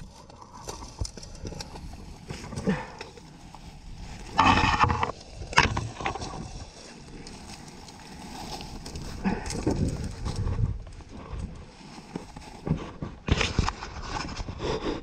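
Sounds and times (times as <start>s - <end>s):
dry leaves crunching: 6.1s - 10.4s.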